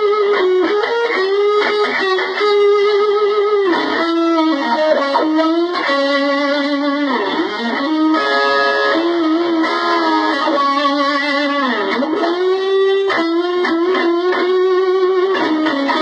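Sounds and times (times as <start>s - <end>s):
electric guitar lead line: 0.0s - 16.0s.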